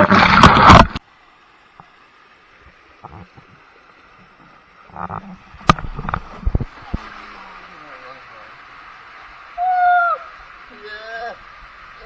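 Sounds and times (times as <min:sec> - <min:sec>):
splashing water in waterslide: 0:00.0 - 0:01.0, 0:05.0 - 0:12.0
faint steady hiss: 0:00.3 - 0:12.0.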